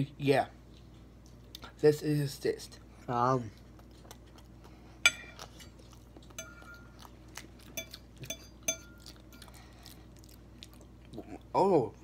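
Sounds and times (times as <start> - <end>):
fork clinking on ceramic plate: 5.0 - 5.8, 6.4 - 7.1, 7.7 - 9.5.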